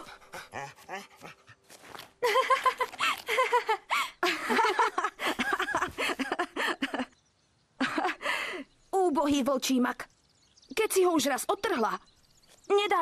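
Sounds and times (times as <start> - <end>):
dog panting and sniffing: 0.0 - 2.2
girl laughing: 2.2 - 7.1, 7.8 - 8.4.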